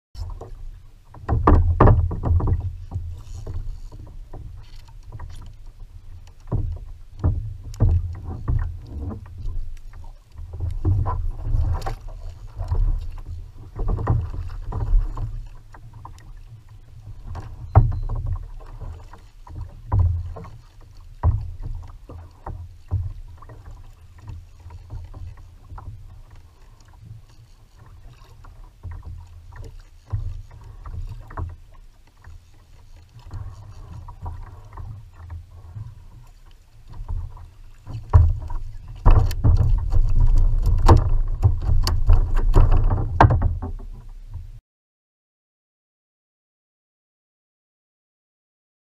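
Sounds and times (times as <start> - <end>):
sharp knocks and clicks: 0.2 - 5.5, 37.8 - 44.0
water sloshing against kayak hull: 0.2 - 44.6.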